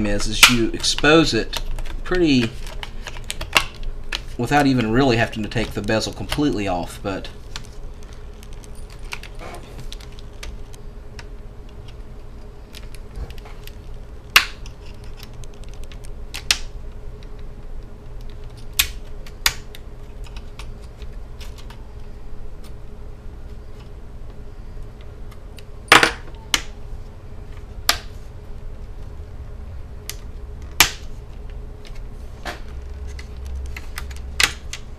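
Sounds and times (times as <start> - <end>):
faint steady hum: 0.0 - 34.9.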